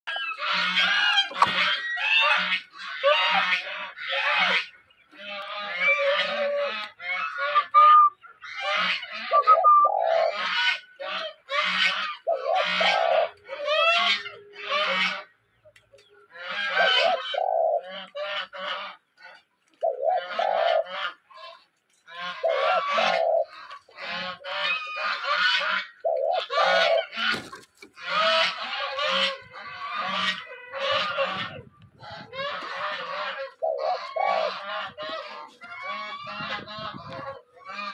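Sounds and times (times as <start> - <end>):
birds calling: 0.1 - 37.9.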